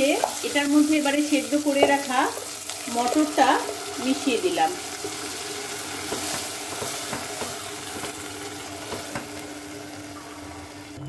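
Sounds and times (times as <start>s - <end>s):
peas sizzling in oil: 0.0s - 11.0s
spatula scraping and tapping pot: 6.0s - 8.2s, 8.8s - 9.4s.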